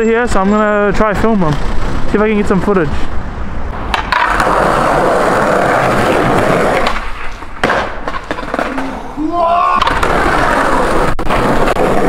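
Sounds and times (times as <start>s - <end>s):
skateboard wheels rolling on pavement: 0.1s - 12.0s
skateboard clacks: 3.8s - 9.0s, 9.8s - 12.0s.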